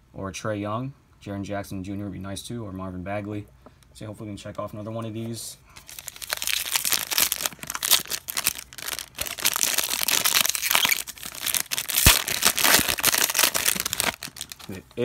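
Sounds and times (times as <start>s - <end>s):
foil pouch crinkling: 5.8s - 14.8s
foil pouch tearing open: 5.8s - 14.8s.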